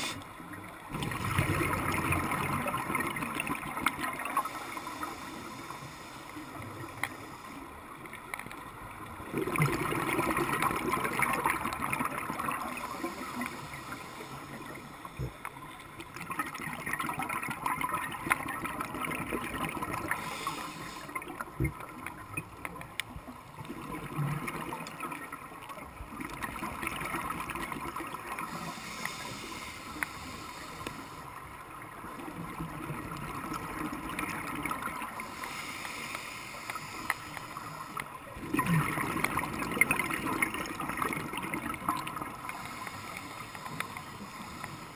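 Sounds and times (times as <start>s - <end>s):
regulator breathing underwater: 0.0s - 0.3s, 20.0s - 21.3s, 28.5s - 31.4s, 35.2s - 38.1s, 42.4s - 44.9s
bubbles gurgling: 0.7s - 4.5s, 9.1s - 13.5s, 16.0s - 20.4s, 23.5s - 28.7s, 32.0s - 35.2s, 38.3s - 42.5s.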